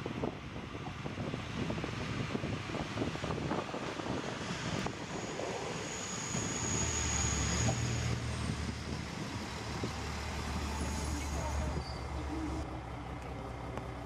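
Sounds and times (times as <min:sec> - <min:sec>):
railcar engine drone: 0:00.0 - 0:14.0
wheels rumbling on track: 0:00.0 - 0:14.0
thin high squeal: 0:05.1 - 0:08.4, 0:10.6 - 0:12.6.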